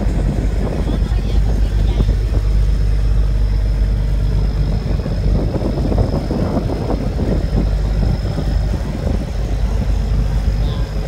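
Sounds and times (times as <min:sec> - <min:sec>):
engine rumbling: 0:00.0 - 0:11.0.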